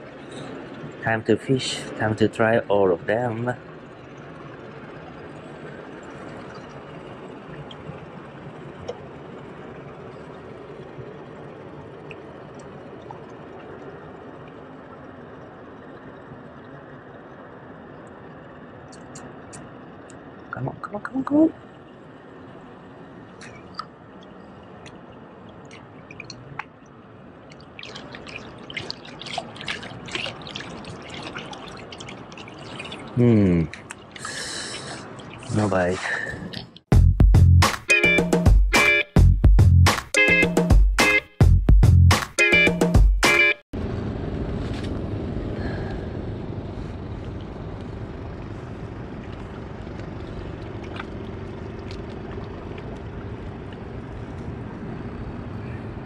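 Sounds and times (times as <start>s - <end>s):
motorboat engine humming: 0.0s - 41.6s, 42.4s - 56.0s
small water splashes: 3.5s - 17.0s, 23.1s - 36.9s, 49.0s - 53.9s
water lapping on rocks: 23.3s - 36.9s, 49.1s - 53.9s.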